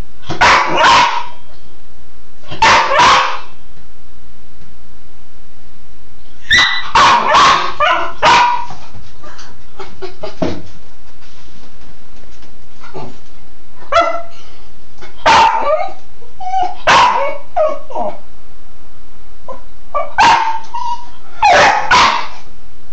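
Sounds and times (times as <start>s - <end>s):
small dog barking and yipping: 0.4s - 1.4s, 2.6s - 3.5s, 6.5s - 8.8s, 15.2s - 18.1s, 20.0s - 22.4s.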